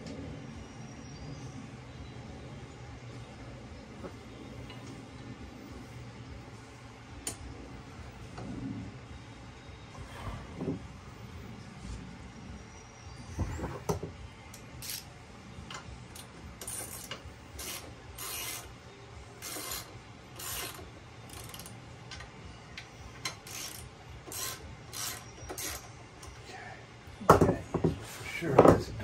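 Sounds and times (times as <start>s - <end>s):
ratchet wrench clicking: 14.5s - 15.1s, 15.7s - 18.8s, 19.4s - 22.3s, 23.2s - 26.4s
knocks: 27.3s - 28.0s.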